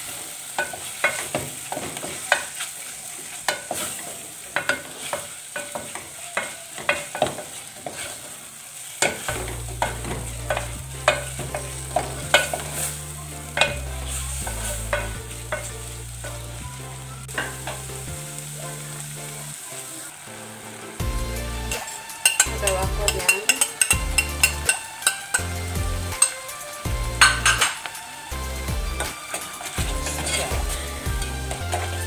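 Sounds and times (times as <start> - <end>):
wooden spatula scraping a pot: 0.6 - 18.1, 29.0 - 32.0.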